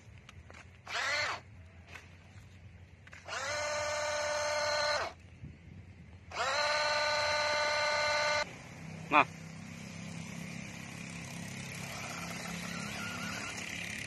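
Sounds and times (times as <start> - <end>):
toy car electric motor whining: 0.8 - 1.5, 3.2 - 5.2, 6.3 - 8.5, 10.7 - 14.0.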